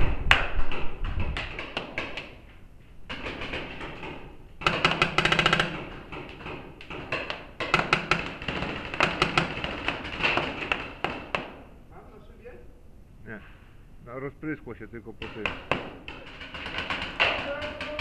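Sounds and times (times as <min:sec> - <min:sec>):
paintball markers firing: 0:03.1 - 0:11.7, 0:15.2 - 0:18.0.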